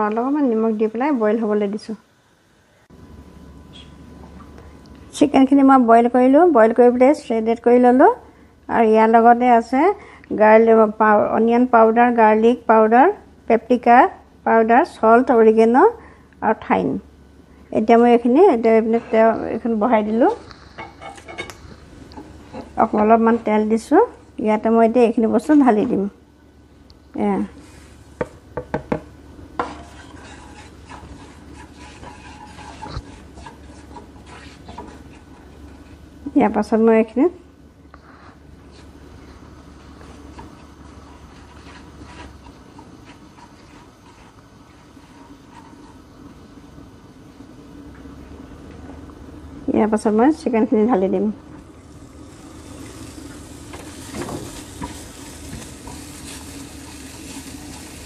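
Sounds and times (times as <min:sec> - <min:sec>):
faint sizzle: 0:00.0 - 0:28.2, 0:29.1 - 0:48.2, 0:49.3 - 0:58.0
spatula scraping a pan: 0:20.0 - 0:21.8, 0:29.6 - 0:36.0, 0:41.0 - 0:46.1, 0:52.3 - 0:58.0
chicken sizzling in oil: 0:51.8 - 0:58.0.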